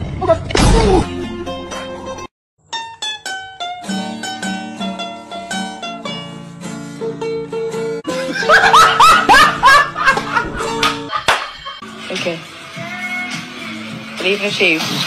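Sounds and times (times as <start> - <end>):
plucked string melody: 1.0 - 8.4, 9.0 - 11.4.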